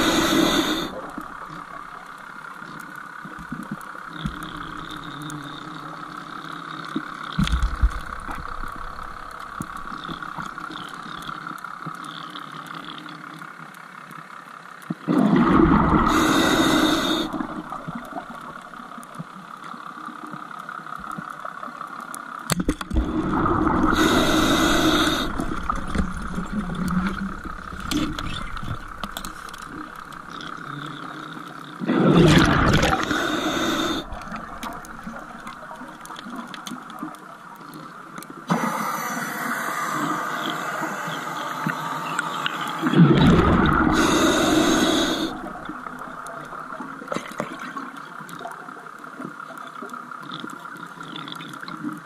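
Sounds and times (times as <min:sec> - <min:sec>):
steady underwater hiss: 0:00.0 - 0:52.0
regulator exhaling bubbles: 0:15.1 - 0:18.0, 0:31.8 - 0:35.4, 0:38.5 - 0:46.0.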